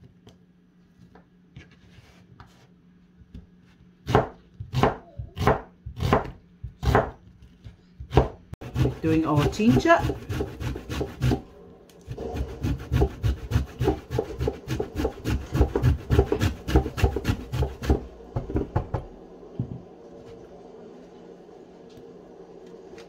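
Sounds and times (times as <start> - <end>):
ginger rasping on a box grater: 8.6 - 11.4, 12.1 - 18.0.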